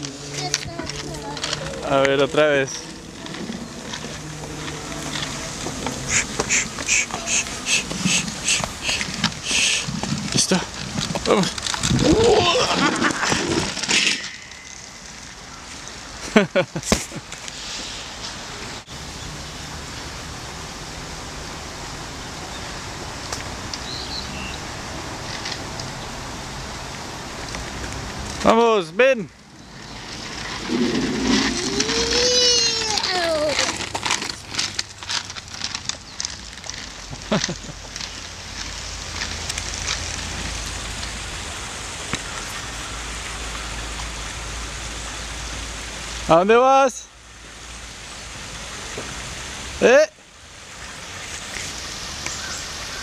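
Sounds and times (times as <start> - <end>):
scooter rolling over gravel: 0.0 - 17.5, 29.4 - 42.8
outdoor hiss with low rumble: 0.0 - 53.0.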